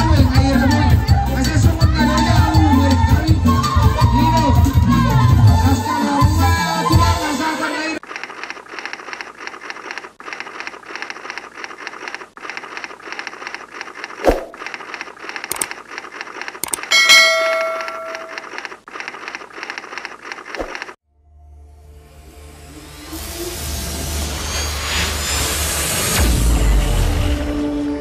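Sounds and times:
crackly noise: 0:08.0 - 0:16.6
mouse clicks: 0:15.5 - 0:15.7, 0:16.6 - 0:16.8
notification bell chime: 0:16.8 - 0:18.4.

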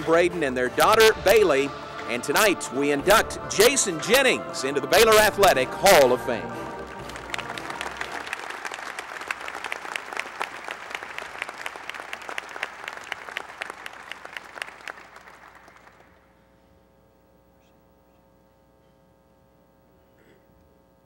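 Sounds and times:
audience applauding: 0:06.7 - 0:16.3
faint electrical hum: 0:13.2 - 0:21.0.

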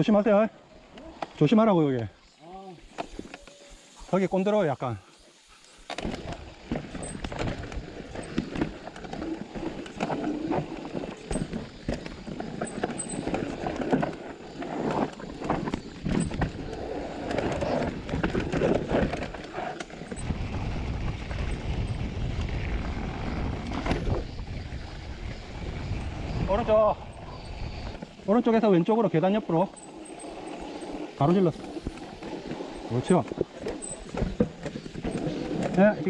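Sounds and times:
bike tyres on dirt and rock: 0:00.0 - 0:36.0
bike frame and chain rattling: 0:05.9 - 0:24.6, 0:25.8 - 0:36.0
wind buffeting microphone: 0:06.1 - 0:28.4.

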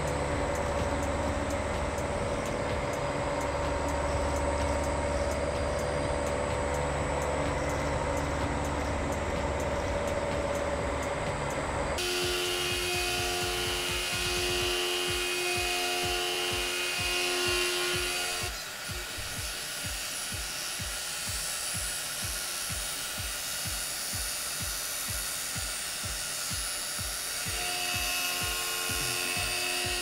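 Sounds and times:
mill cutting metal: 0:00.0 - 0:30.0
steady tones with low pulse: 0:00.0 - 0:30.0.

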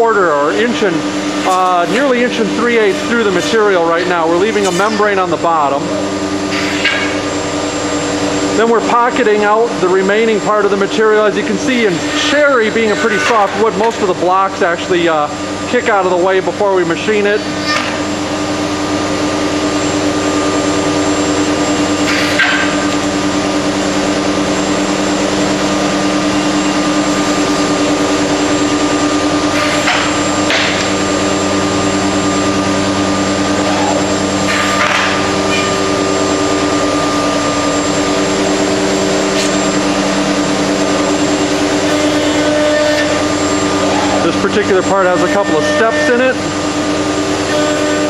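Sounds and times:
router spindle whine: 0:22.7 - 0:48.0.

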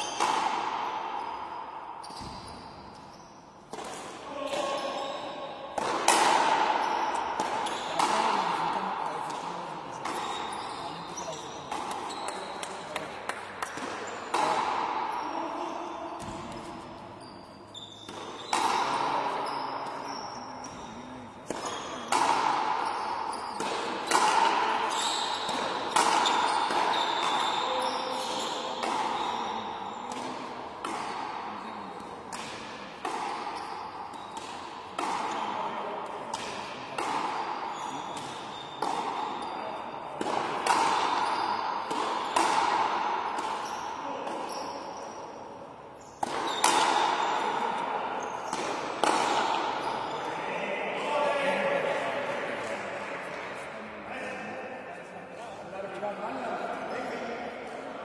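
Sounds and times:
racket striking rubber ball: 0:00.2 - 0:01.3, 0:02.0 - 0:02.6, 0:03.7 - 0:04.7, 0:05.8 - 0:08.6, 0:11.7 - 0:15.0, 0:21.4 - 0:27.4, 0:30.1 - 0:35.5, 0:36.3 - 0:39.5, 0:40.1 - 0:44.4, 0:46.2 - 0:47.7, 0:48.4 - 0:49.8.

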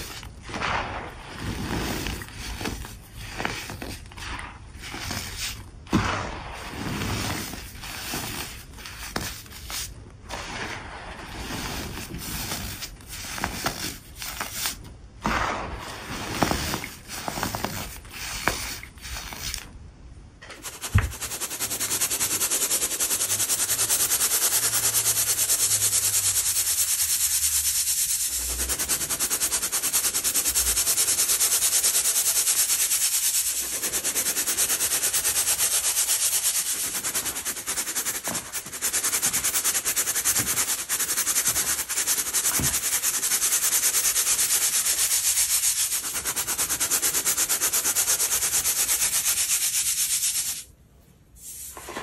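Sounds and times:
baking soda sifting hiss: 0:00.0 - 0:19.7, 0:20.6 - 0:50.8, 0:51.4 - 0:52.0
gritty powder crunching: 0:00.0 - 0:19.7.

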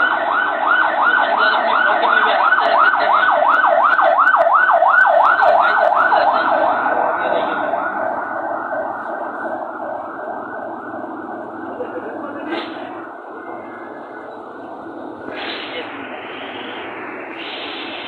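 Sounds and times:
electronic siren yelping: 0:00.0 - 0:11.7.

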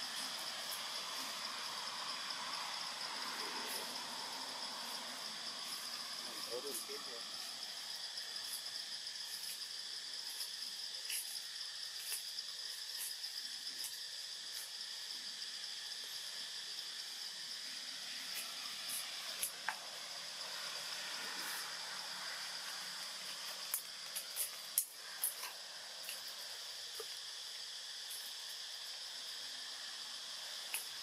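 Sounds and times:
insects droning: 0:00.0 - 0:31.0.

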